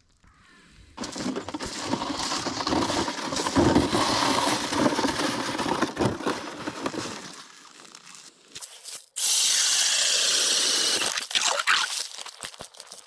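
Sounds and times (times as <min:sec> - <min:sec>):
footsteps crunching on ice crust: 0:01.0 - 0:09.2, 0:11.0 - 0:13.0.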